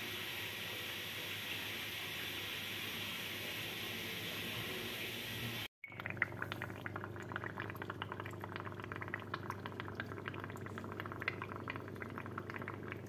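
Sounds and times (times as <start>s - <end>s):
water bubbling and trickling: 5.8s - 13.0s.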